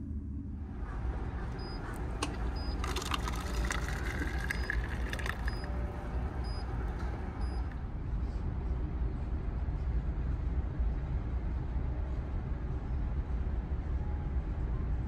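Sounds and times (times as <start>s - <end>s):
low engine drone: 0.0s - 15.0s
tea pouring into paper cup: 2.7s - 5.7s.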